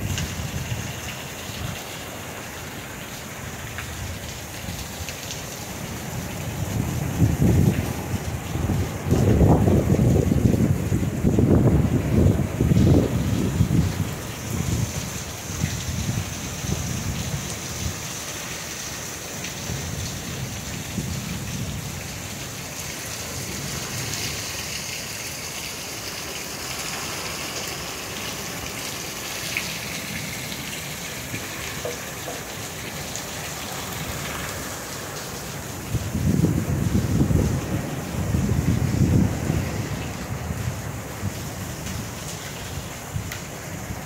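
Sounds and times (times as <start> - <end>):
heavy rain pouring: 0.0 - 44.0
thunder rumbling: 6.2 - 17.9, 35.9 - 42.0.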